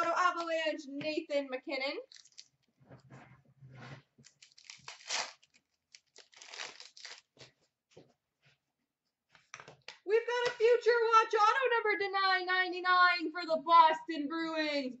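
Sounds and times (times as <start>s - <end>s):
cards and foil wrapper rustling: 2.1s - 2.5s, 4.2s - 7.5s.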